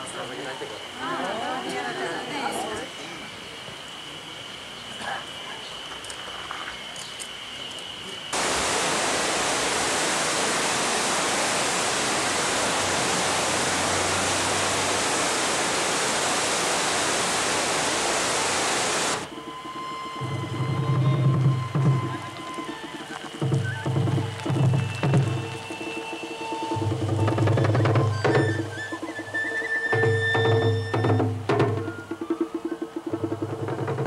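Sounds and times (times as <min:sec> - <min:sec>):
distant voices: 0:00.0 - 0:31.1
river rapids rushing over boulders: 0:08.4 - 0:19.4, 0:21.5 - 0:29.2.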